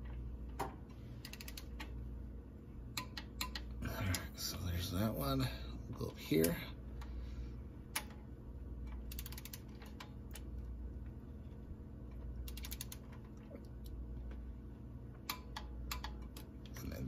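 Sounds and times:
torque wrench ratchet clicks: 0:01.2 - 0:01.7, 0:09.0 - 0:10.0, 0:12.5 - 0:13.0.

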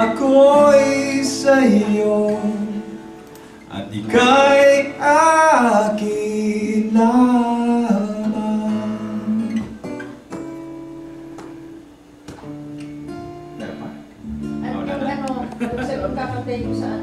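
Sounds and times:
man singing: 0:00.0 - 0:03.1, 0:03.7 - 0:09.8
acoustic guitar strumming: 0:00.0 - 0:17.0
held keyboard chords: 0:08.0 - 0:17.0.

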